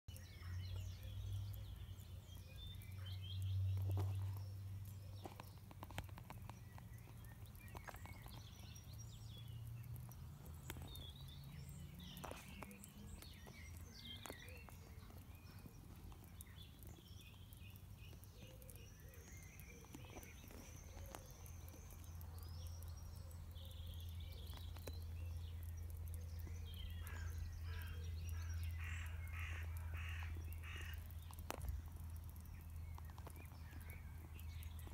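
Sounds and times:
birds chirping and calling: 0:00.1 - 0:34.9.

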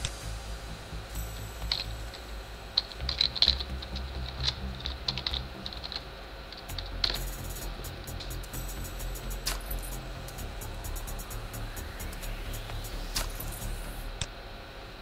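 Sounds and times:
low hum: 0:00.0 - 0:15.0
keyboard keys clicking: 0:06.6 - 0:08.4.

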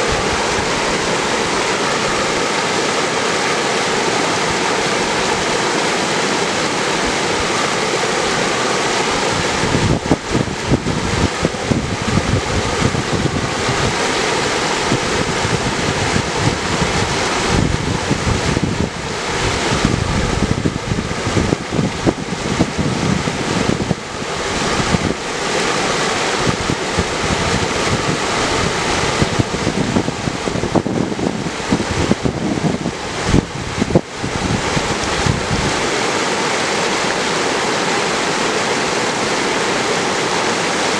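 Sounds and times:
river rushing over rocks: 0:00.0 - 0:40.9
wind buffeting microphone: 0:04.0 - 0:36.3.

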